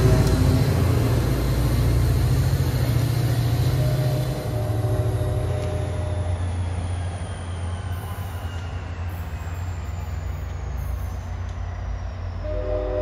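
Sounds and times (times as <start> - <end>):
diesel locomotive rumbling: 0.0 - 13.0
high wheel squeal: 3.2 - 13.0.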